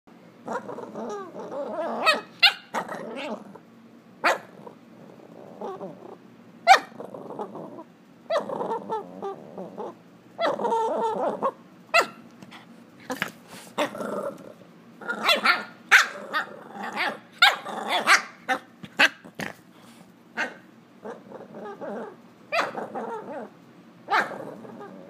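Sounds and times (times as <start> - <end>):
puppy growling: 0.4 - 25.0
puppy barking: 2.0 - 3.3, 4.2 - 4.6, 6.6 - 7.0, 11.4 - 12.2, 15.2 - 19.2, 20.4 - 20.6, 22.5 - 22.9, 24.1 - 24.4.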